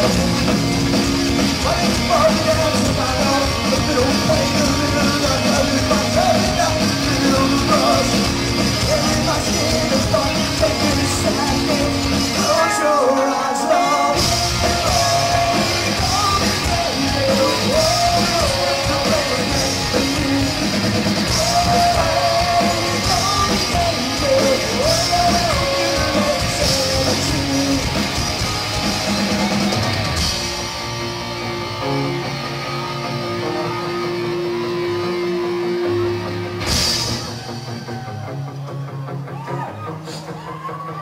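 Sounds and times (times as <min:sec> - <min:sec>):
drum kit and cymbals: 0:00.0 - 0:31.4, 0:35.8 - 0:38.4
bass guitar: 0:00.0 - 0:41.0
electric guitar: 0:00.0 - 0:41.0
person yelling and singing: 0:08.8 - 0:20.6, 0:21.2 - 0:27.9.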